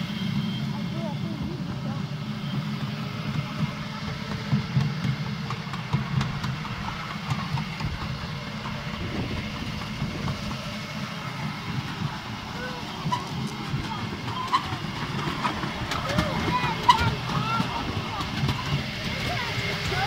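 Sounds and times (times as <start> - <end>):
miniature train engine drone: 0.0 - 20.0.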